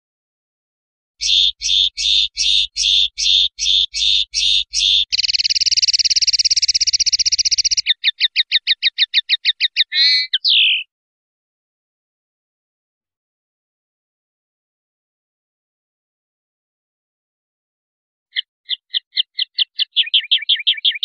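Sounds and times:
songbird chirping and trilling: 1.2 - 10.9, 18.3 - 21.0.

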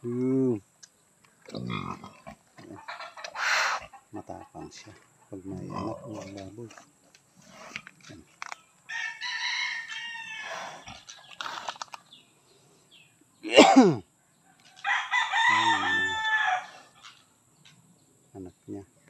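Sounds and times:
rooster crowing: 8.9 - 10.6, 14.6 - 17.0.

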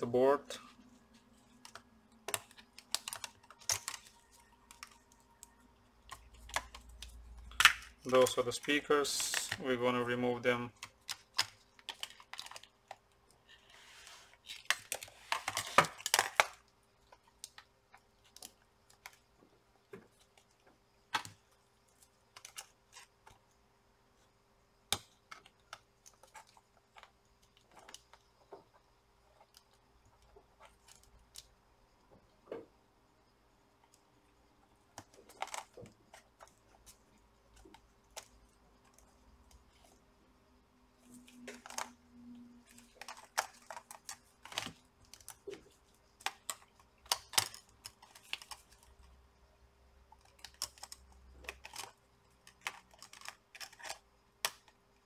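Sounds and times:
clicking and scraping of plastic parts: 0.5 - 9.8, 10.5 - 23.6, 24.9 - 32.7, 34.8 - 40.0, 41.0 - 49.2, 50.1 - 55.0
small plastic parts clicking: 34.9 - 40.0, 42.6 - 49.2, 50.1 - 55.0.

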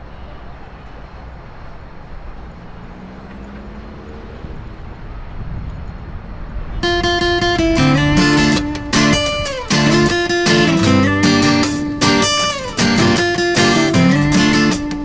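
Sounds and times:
city traffic rumble: 0.0 - 15.0
plucked guitar notes: 6.8 - 15.0.

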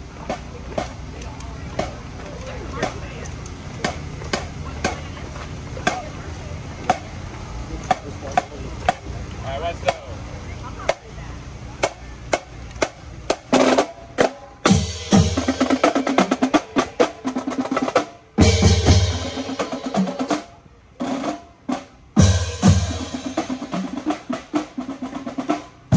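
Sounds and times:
drumline playing a cadence: 11.8 - 25.9
bass drums: 18.4 - 20.3, 22.2 - 25.4.

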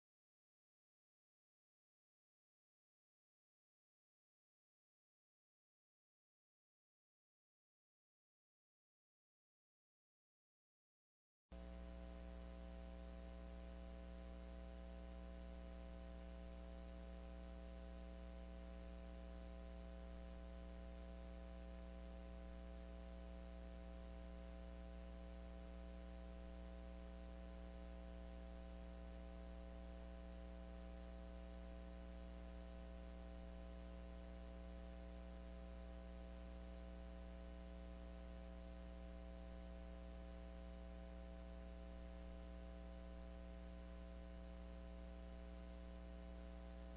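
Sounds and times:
faint electrical hum: 11.5 - 46.9.

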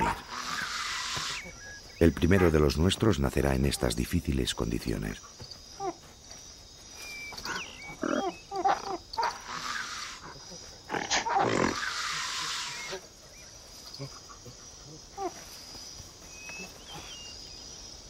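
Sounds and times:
harsh hoarse ape calls: 0.0 - 4.0, 7.4 - 13.1
apes grunting and hooting: 0.0 - 4.2
high insect chirr: 0.0 - 18.0.

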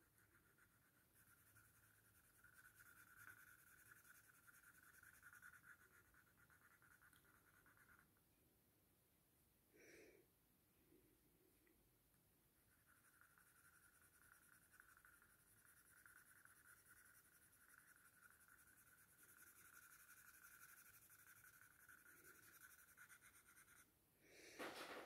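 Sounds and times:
pencil scratching on paper: 0.0 - 8.1, 12.7 - 23.9.

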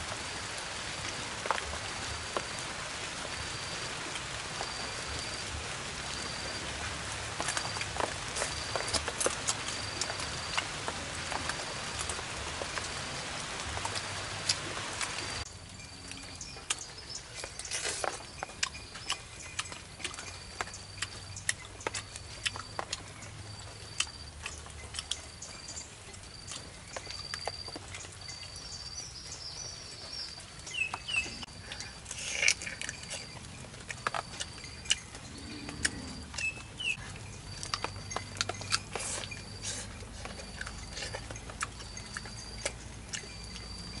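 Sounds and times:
person chewing: 16.1 - 23.2, 23.8 - 25.3, 30.9 - 43.7.

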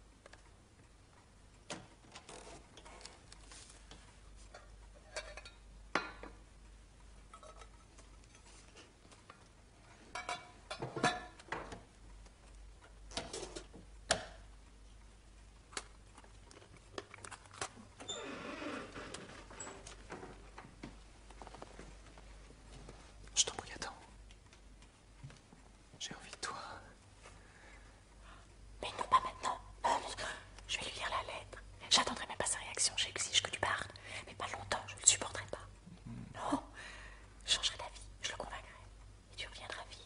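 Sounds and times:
soft rustle: 2.3 - 4.9, 16.0 - 27.6.

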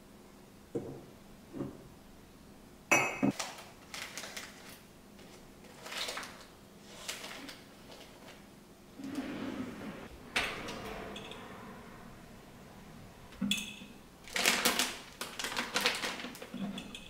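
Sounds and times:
ceramic cups clinking: 2.9 - 3.4.

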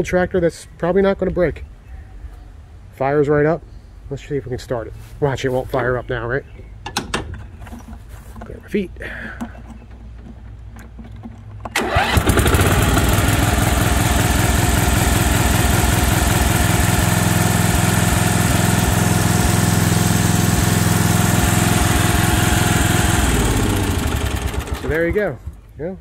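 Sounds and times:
lawn tractor engine starting and running: 9.2 - 25.6.

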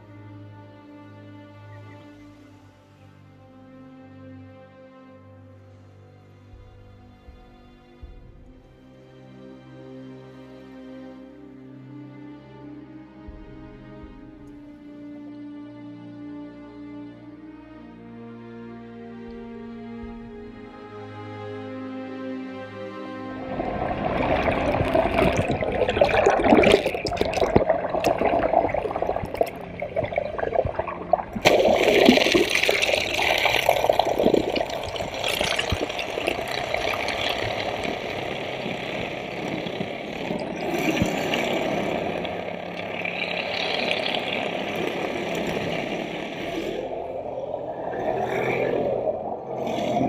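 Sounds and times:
rushing splashing water: 22.9 - 50.0.

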